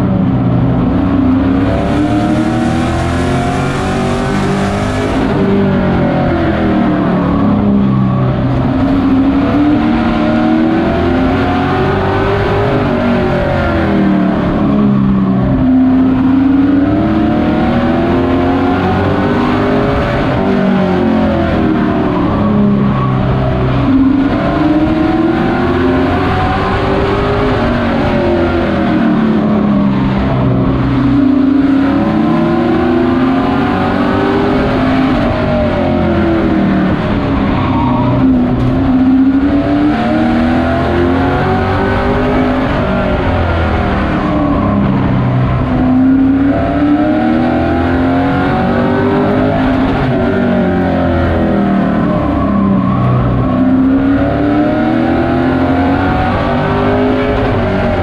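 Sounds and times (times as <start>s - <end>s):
race engine revving: 0.0s - 58.0s.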